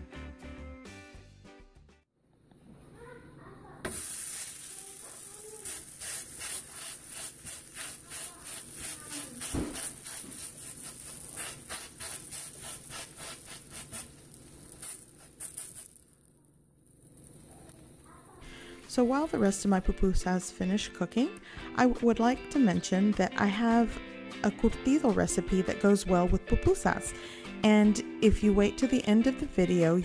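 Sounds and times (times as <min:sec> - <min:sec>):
food sizzling on a griddle: 0:03.9 - 0:19.4.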